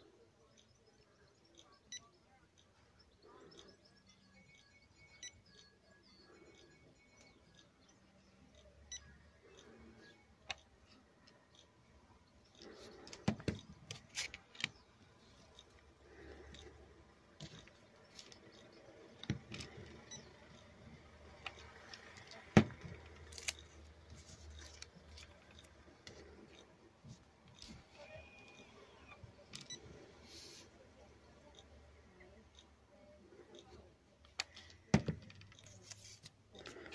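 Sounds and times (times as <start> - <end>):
faint plastic clicks and taps: 8.4 - 30.0, 30.6 - 36.9.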